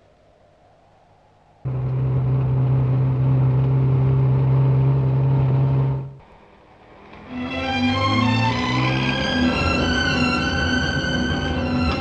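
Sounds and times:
faint hum: 0.0s - 12.0s
car engine running: 1.7s - 6.2s
string music: 7.0s - 12.0s.

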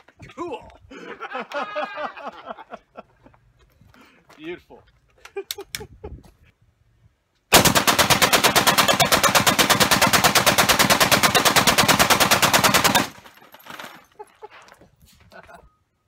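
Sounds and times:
machine gun firing burst: 7.5s - 13.2s.

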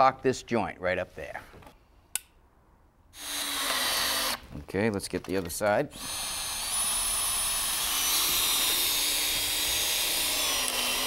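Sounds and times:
drill motor whining: 3.2s - 4.4s, 6.0s - 11.0s.

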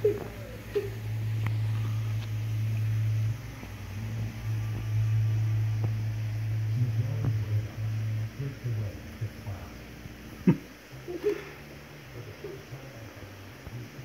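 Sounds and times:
aquarium equipment hum: 0.0s - 14.0s.

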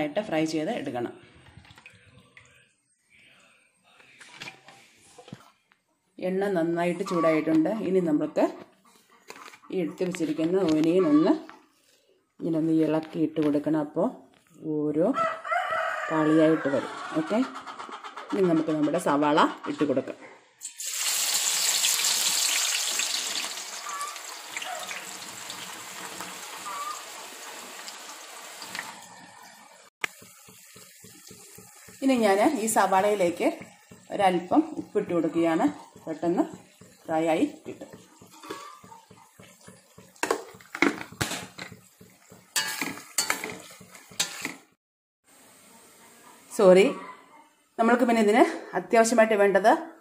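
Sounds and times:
onions sizzling in hot oil: 20.6s - 44.6s
spoon scraping metal pot: 32.8s - 44.7s.

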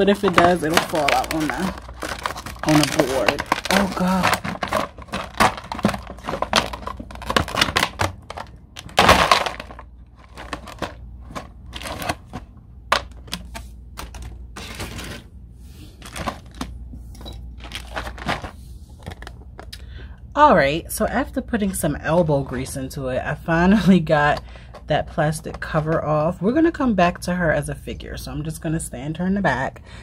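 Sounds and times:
plastic packaging crackling: 0.0s - 16.8s, 17.4s - 19.7s.

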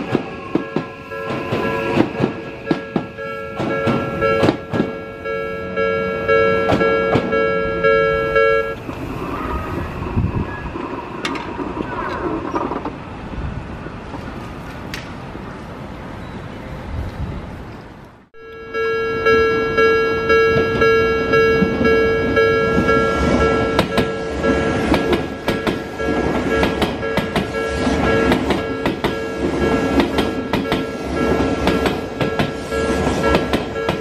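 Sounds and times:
train wheels clattering over rails: 0.0s - 5.0s, 6.6s - 7.3s, 21.6s - 34.0s
level-crossing alarm ringing: 0.0s - 8.8s, 18.4s - 34.0s
train passing: 0.0s - 34.0s.

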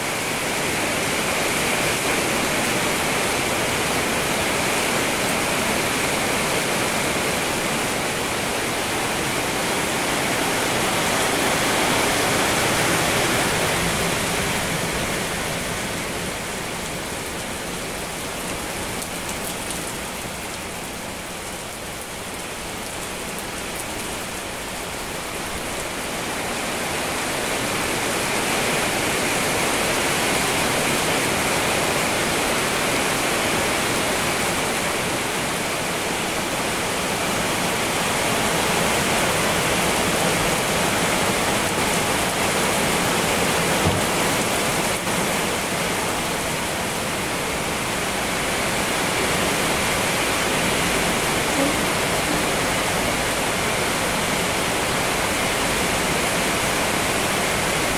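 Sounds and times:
steady rain hiss: 0.0s - 57.9s.

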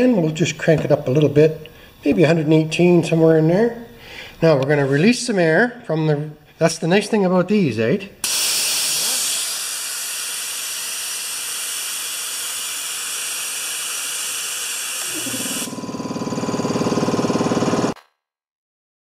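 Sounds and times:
compressed air hissing: 8.2s - 15.7s
compressor motor humming: 8.3s - 18.0s.

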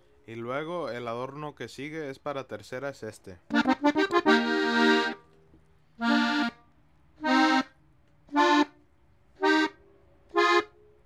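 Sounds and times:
button accordion notes: 3.5s - 5.3s, 6.0s - 6.6s, 7.2s - 8.8s, 9.4s - 10.8s.

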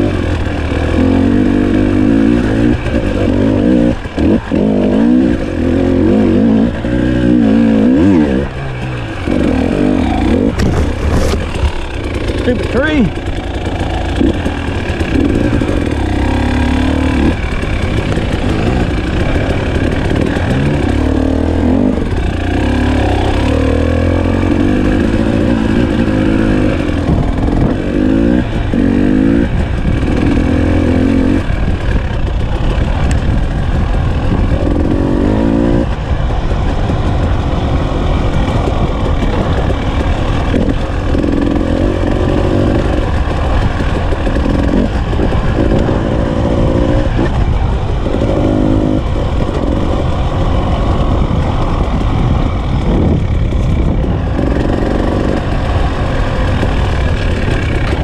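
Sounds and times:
two-stroke engine revving: 0.0s - 58.0s.

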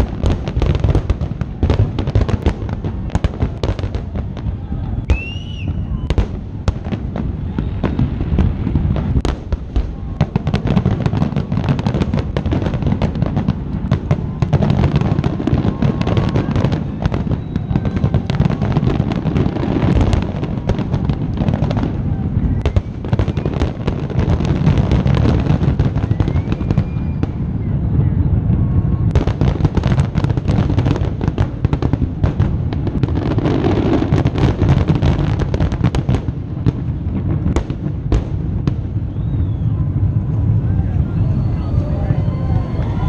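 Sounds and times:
fireworks bursting: 0.0s - 43.0s
low rumble: 38.4s - 43.0s.

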